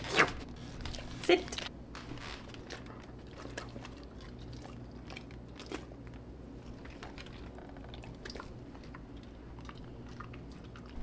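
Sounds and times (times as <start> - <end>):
dogs chewing: 2.6 - 11.0.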